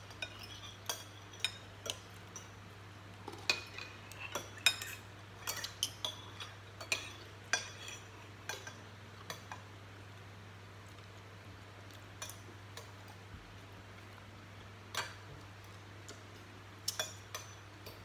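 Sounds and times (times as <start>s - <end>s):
cutlery clinking on plates: 3.3s - 9.6s, 16.8s - 18.0s.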